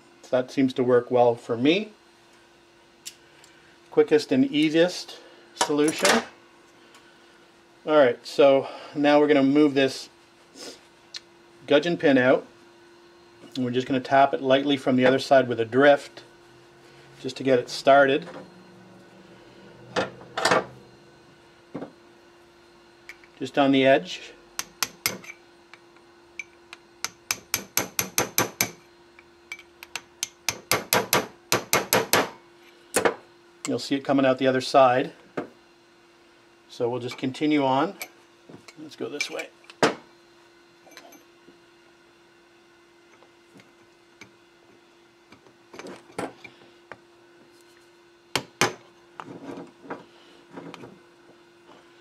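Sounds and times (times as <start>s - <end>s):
hammer tapping on metal: 24.6s - 25.3s, 26.4s - 28.8s.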